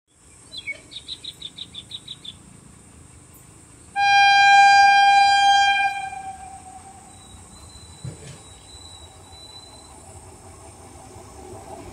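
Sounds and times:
bird chirping: 0.1s - 2.5s, 6.9s - 10.0s
locomotive horn blast: 4.0s - 7.1s
insect hiss: 4.7s - 11.9s.

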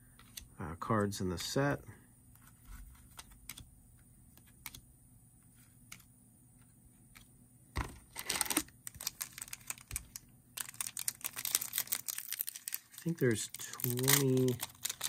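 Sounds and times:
crinkling rustle of wrapped pack: 8.2s - 15.0s.

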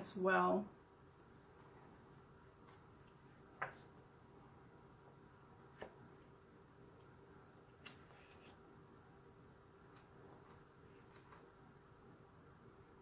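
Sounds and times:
room hum: 0.0s - 13.0s
book pages turning: 2.6s - 4.0s, 5.6s - 6.4s, 7.6s - 8.6s, 9.9s - 11.6s.

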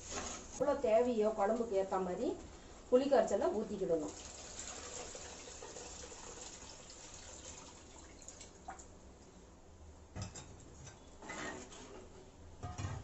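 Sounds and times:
water pouring into pot: 4.1s - 8.8s
water dripping: 4.1s - 9.3s.

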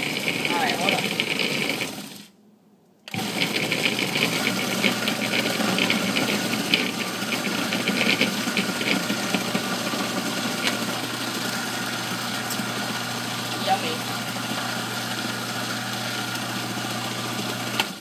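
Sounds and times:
food processor motor hum: 0.0s - 2.3s, 3.1s - 18.0s.

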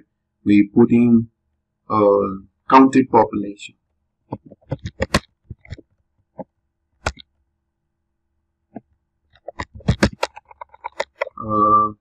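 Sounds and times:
computer keyboard typing: 4.3s - 5.8s, 9.4s - 11.3s.

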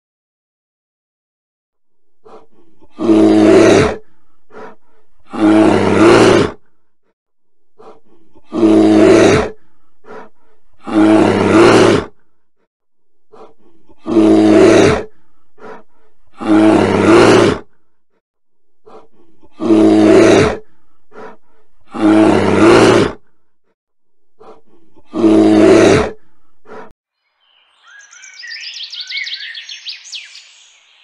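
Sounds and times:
bear roaring: 2.2s - 6.8s, 7.8s - 12.3s, 13.3s - 17.8s, 18.8s - 23.4s, 24.4s - 26.9s.

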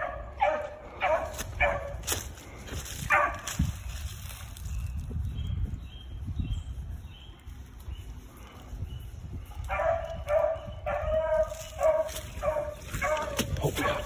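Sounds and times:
hound barking: 0.0s - 2.2s, 3.0s - 3.6s, 9.7s - 14.0s.

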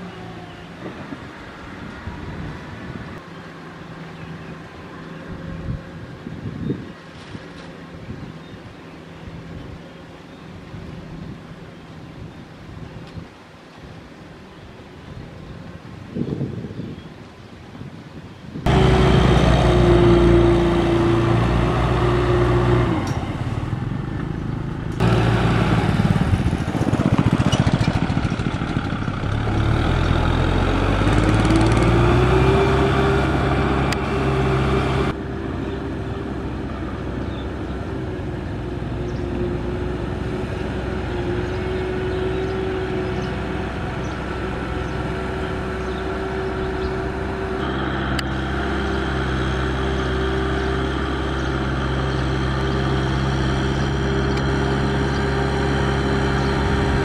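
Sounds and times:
tractor diesel engine revving: 18.7s - 57.0s.

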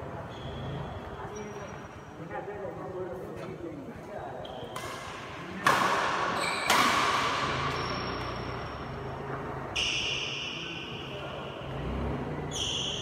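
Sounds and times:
racket striking shuttlecock: 4.7s - 8.8s.

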